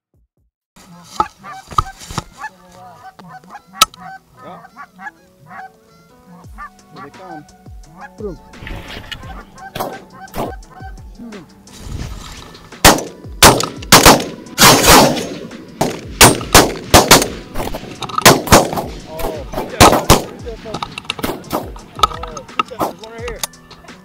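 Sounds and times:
shotgun shots: 0:09.8 - 0:10.5, 0:12.8 - 0:20.4, 0:21.2 - 0:22.2.

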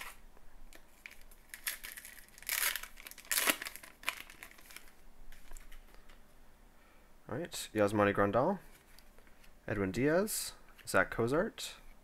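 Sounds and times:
wrapper crinkling: 0:00.8 - 0:05.8
wrapper tearing: 0:01.0 - 0:04.9.

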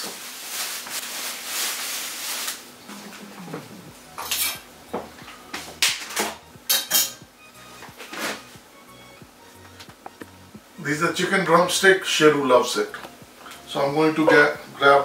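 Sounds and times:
plastic film rustling: 0:00.0 - 0:03.7.

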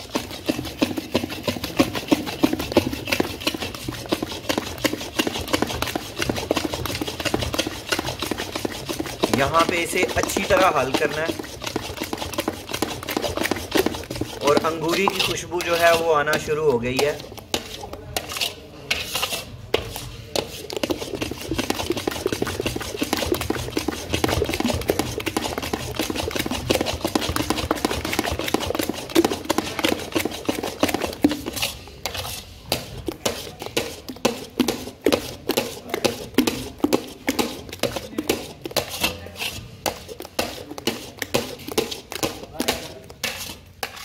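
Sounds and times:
spoon scraping and knocking pan: 0:00.0 - 0:44.0
spoon stirring thick batter: 0:00.0 - 0:44.0.

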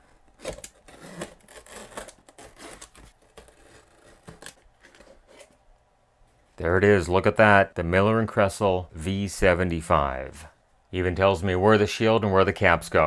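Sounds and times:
knife slicing cardboard tape: 0:00.3 - 0:04.6.

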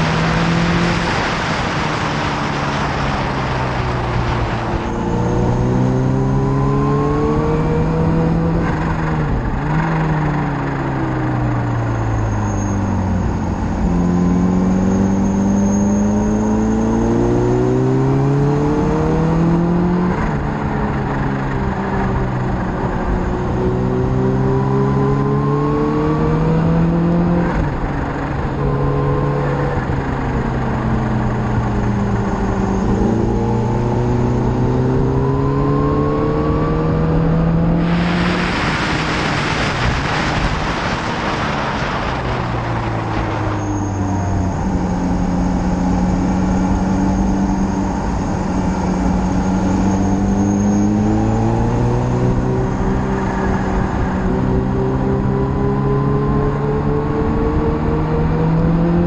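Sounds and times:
wind noise rushing: 0:00.0 - 0:06.6, 0:36.8 - 0:49.9
motorcycle engine revving: 0:00.0 - 0:10.6, 0:13.7 - 0:59.0.

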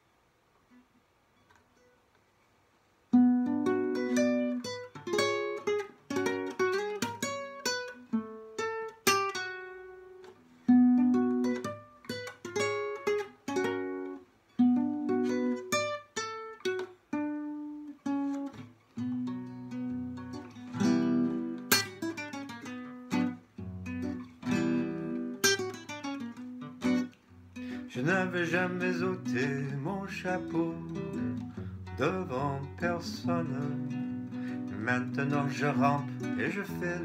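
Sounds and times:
classical guitar fingerpicked: 0:03.1 - 0:37.0.

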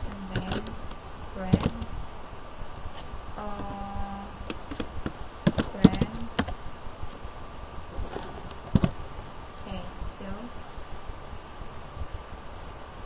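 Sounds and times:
keyboard typing clicks: 0:00.2 - 0:01.9, 0:03.4 - 0:06.6.

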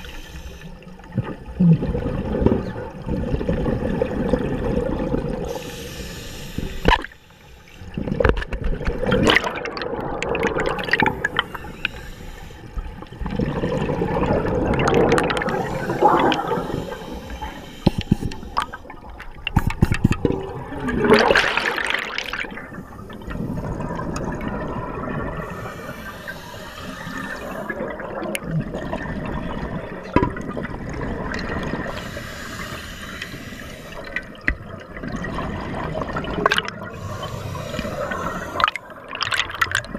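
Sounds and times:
diver breathing through regulator: 0:00.0 - 0:00.8, 0:05.5 - 0:07.9, 0:10.9 - 0:12.9, 0:15.2 - 0:18.9, 0:25.4 - 0:28.0, 0:31.8 - 0:34.3, 0:36.9 - 0:39.0
exhaled bubbles gurgling: 0:00.0 - 0:07.2, 0:07.8 - 0:39.9.

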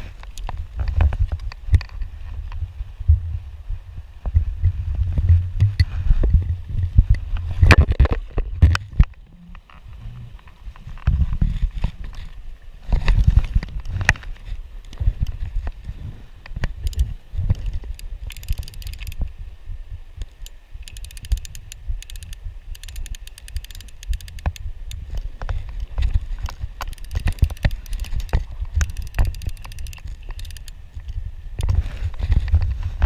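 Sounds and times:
low microphone rumble: 0:00.6 - 0:11.8
fishing reel ratchet clicking: 0:16.8 - 0:19.2, 0:20.2 - 0:25.3, 0:26.8 - 0:30.8.

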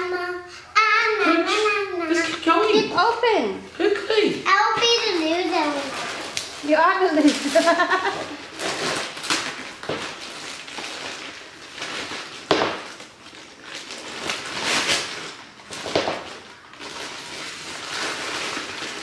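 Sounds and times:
wrapping paper crinkling: 0:04.6 - 0:19.0
paper ripping: 0:04.8 - 0:19.0.

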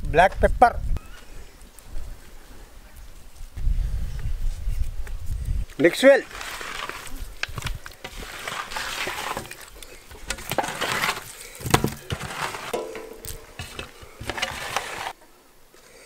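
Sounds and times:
clinks against metal tray: 0:12.7 - 0:14.0.

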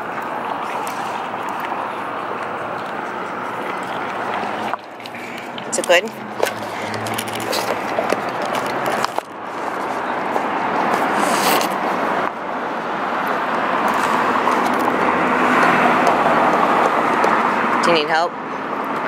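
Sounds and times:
dog licking and gnawing paper cup: 0:00.0 - 0:12.3, 0:13.2 - 0:18.0
passing road traffic: 0:00.0 - 0:19.0
cup scraping against stone: 0:00.6 - 0:11.8.

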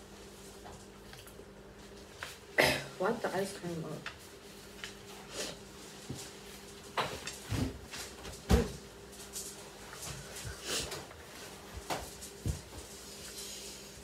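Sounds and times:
paper towel rustling: 0:03.6 - 0:14.0.

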